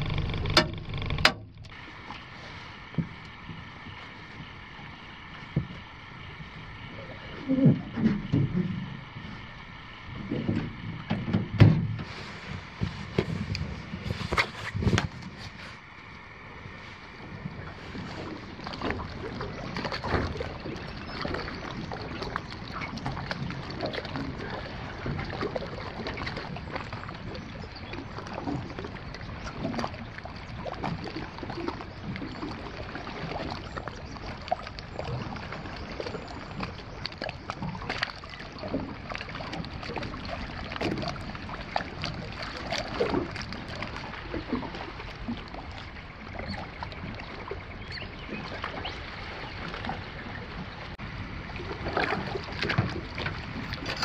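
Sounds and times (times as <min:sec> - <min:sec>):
knocks in aluminium boat: 0:00.0 - 0:01.8, 0:10.3 - 0:12.1
water lapping against hull: 0:00.0 - 0:54.0.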